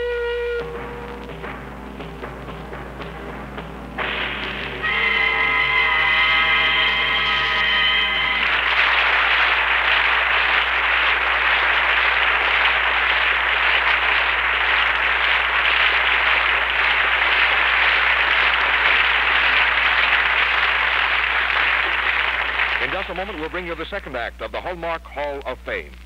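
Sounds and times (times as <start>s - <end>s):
audience applause: 4.0s - 24.3s.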